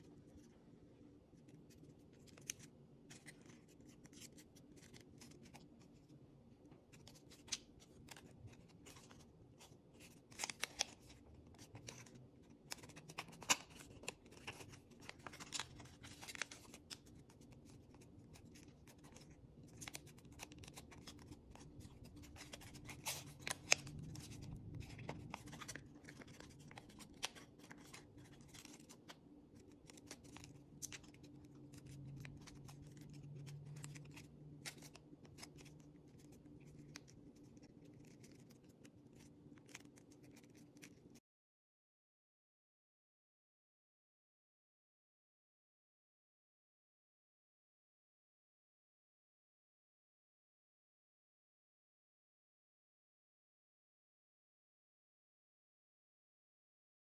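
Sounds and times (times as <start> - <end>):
low steady hum: 0.0 - 40.3
paper being folded and creased: 1.4 - 6.2, 6.8 - 41.2.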